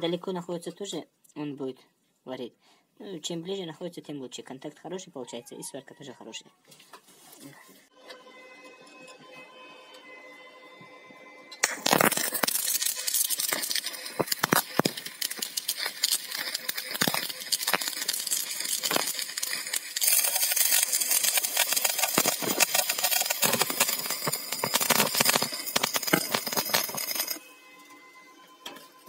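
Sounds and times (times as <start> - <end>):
welding arc crackling: 11.6 - 27.4.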